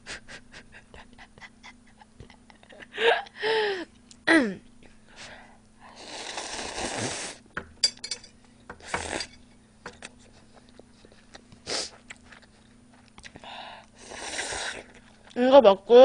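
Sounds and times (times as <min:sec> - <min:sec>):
person slurping noodles: 0:05.9 - 0:07.4, 0:08.8 - 0:09.3, 0:14.0 - 0:15.0
chewing: 0:10.0 - 0:13.4
sniffing: 0:11.0 - 0:12.1.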